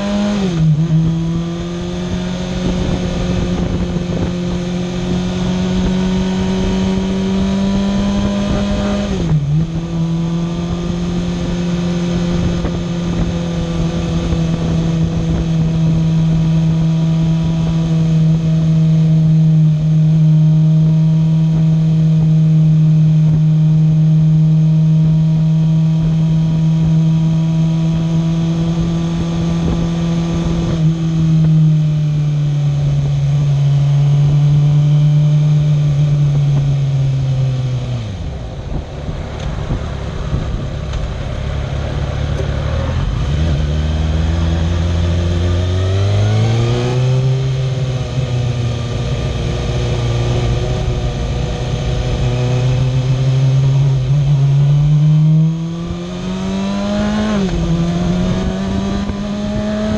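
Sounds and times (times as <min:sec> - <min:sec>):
motorcycle engine: 0:00.0 - 0:59.9.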